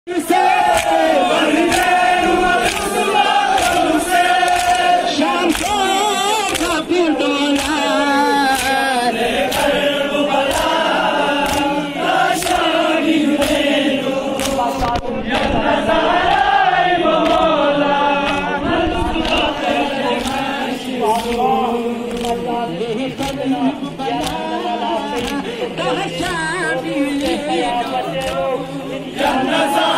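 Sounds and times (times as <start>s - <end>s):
crowd of men chanting: 0.1s - 29.9s
hands slapping chests: 0.5s - 6.9s, 7.5s - 9.8s, 10.4s - 12.8s, 13.4s - 15.6s, 17.2s - 17.5s, 18.2s - 18.5s, 19.2s - 22.5s, 23.1s - 23.5s, 24.1s - 25.5s, 27.2s - 27.5s, 28.2s - 28.4s.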